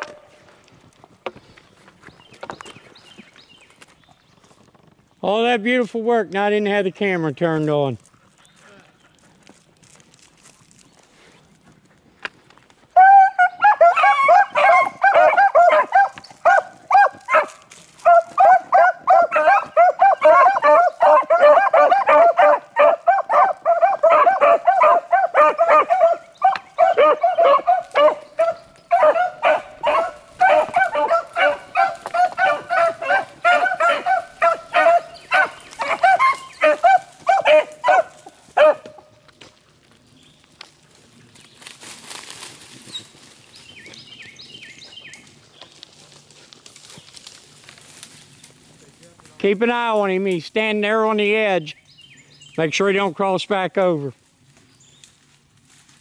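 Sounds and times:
hounds baying: 0.0s - 0.6s, 12.9s - 39.2s.

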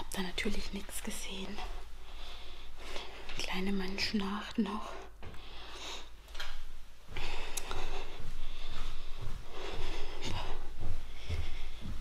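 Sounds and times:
woman breathing: 1.4s - 3.4s, 4.8s - 6.4s, 7.1s - 12.0s.

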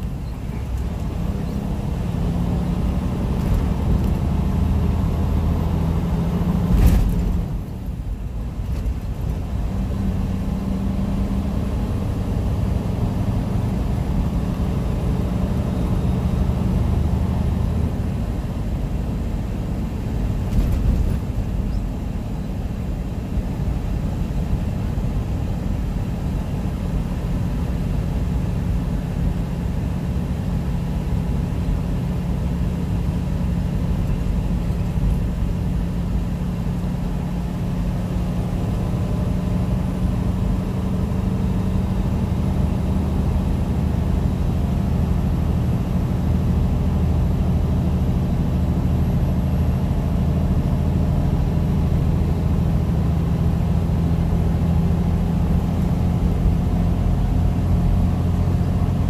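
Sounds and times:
tyre and road noise: 0.0s - 18.1s, 20.1s - 25.1s
truck diesel engine running: 0.0s - 59.0s.

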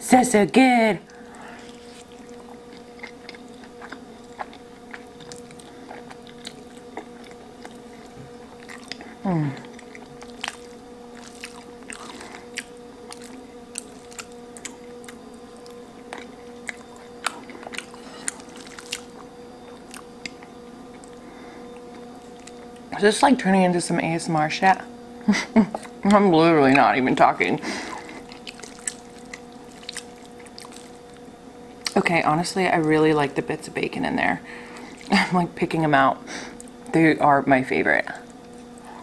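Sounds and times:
faint steady hum: 0.0s - 39.0s
chewing and wet mouth sounds: 1.1s - 22.9s, 27.9s - 32.1s, 34.7s - 35.2s
person humming: 9.2s - 9.7s.

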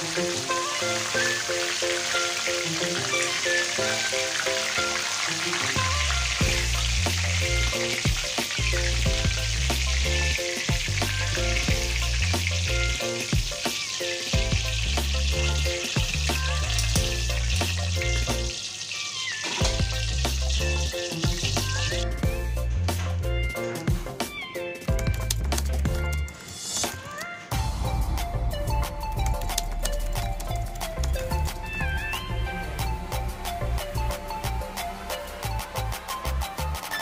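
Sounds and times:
food deep-frying in oil: 0.0s - 24.2s
background music with bass line: 5.7s - 13.6s, 14.4s - 18.6s, 19.6s - 26.4s, 27.5s - 37.0s.

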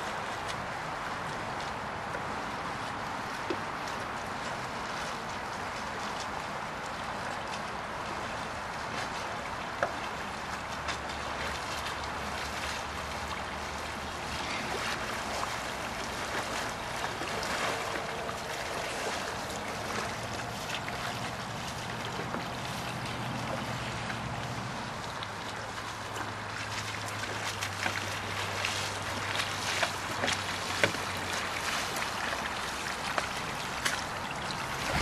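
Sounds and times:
canoe paddle splashes: 0.0s - 35.0s
flowing river water: 0.0s - 35.0s.

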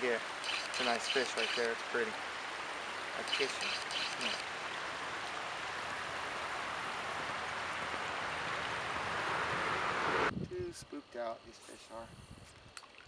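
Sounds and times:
flowing creek water: 0.0s - 10.3s.

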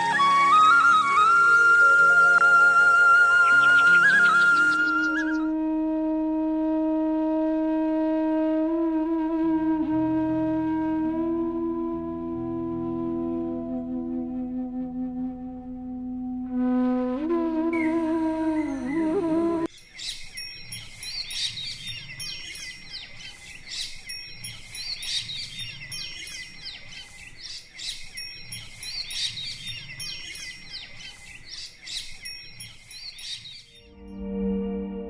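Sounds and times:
small birds chirping: 18.6s - 33.9s
gliding sustained musical tones: 33.8s - 35.0s.

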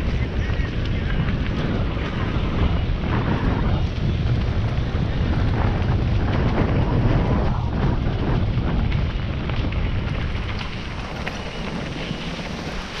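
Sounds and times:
bike rattling: 0.0s - 13.0s
wind buffeting microphone: 0.0s - 13.0s.

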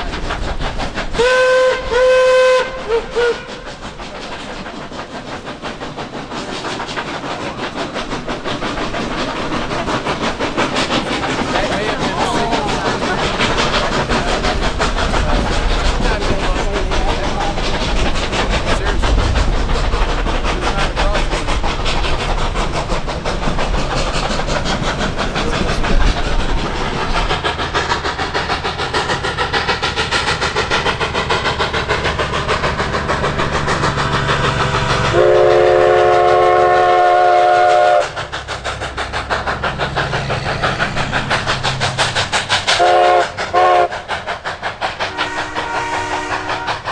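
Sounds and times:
steam locomotive exhaust beats: 0.0s - 46.9s
steam whistle blast: 1.2s - 3.6s, 35.1s - 38.2s, 42.8s - 43.9s, 45.1s - 46.8s.

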